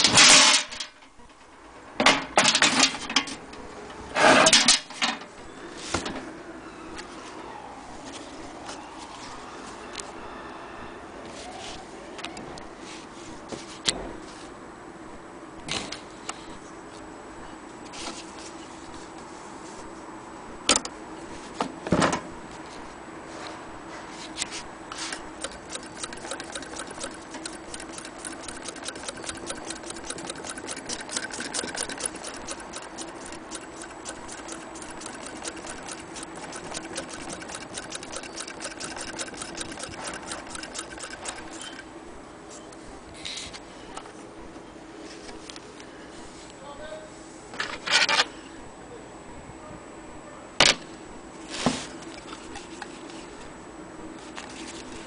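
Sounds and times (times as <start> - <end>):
sewing machine clatter: 25.4 - 41.8.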